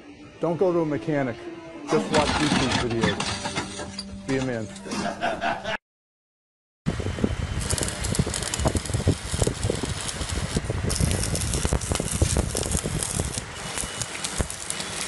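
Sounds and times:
arc welding crackle: 7.5s - 15.0s.

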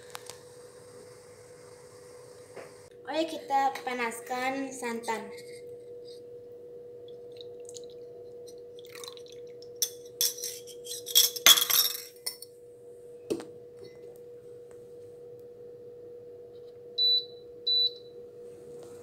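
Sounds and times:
liquid pouring: 7.2s - 9.9s
metal bowl and pot clinking: 8.8s - 12.5s.

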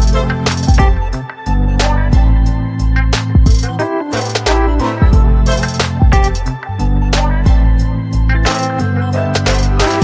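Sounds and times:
steady drum beat: 0.0s - 1.1s, 3.3s - 6.5s
deep bass notes: 4.5s - 8.5s.

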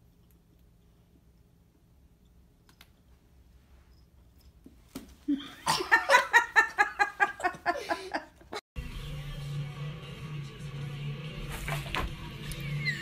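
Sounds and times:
person laughing hard: 5.3s - 8.6s.

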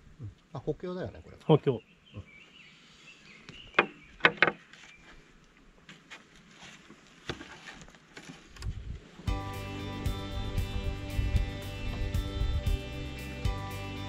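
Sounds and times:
faint bird calls: 1.3s - 5.4s
wooden boards knocking: 3.8s - 4.6s.

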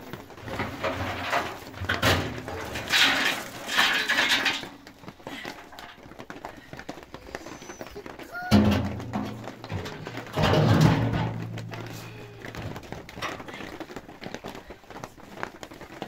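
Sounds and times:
metal drum scraping and knocking: 0.0s - 4.8s, 8.4s - 13.4s
ash and embers pouring out: 0.6s - 4.8s.

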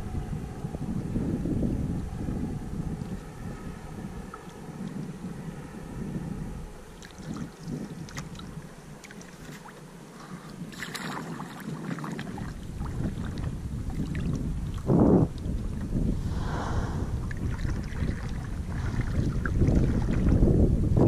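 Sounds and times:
wind buffeting microphone: 0.0s - 21.0s
water lapping against hull: 2.8s - 5.4s, 6.8s - 20.7s.

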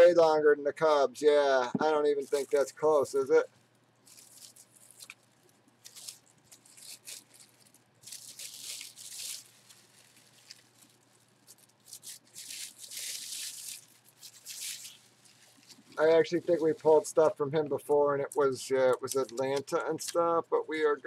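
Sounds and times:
tissue paper crinkling: 2.2s - 2.7s, 3.5s - 17.3s.

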